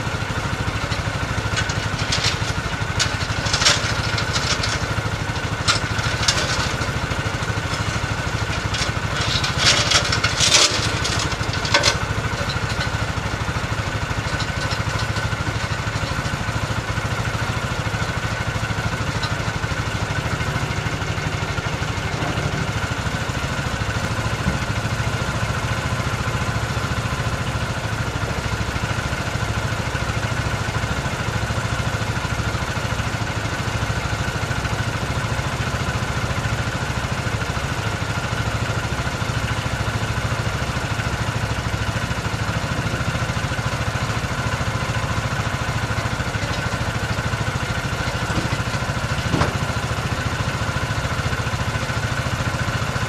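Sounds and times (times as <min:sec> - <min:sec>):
tractor engine idling: 0:00.0 - 0:53.0
sharp metallic clicks and clatters: 0:00.8 - 0:07.0, 0:07.6 - 0:13.1.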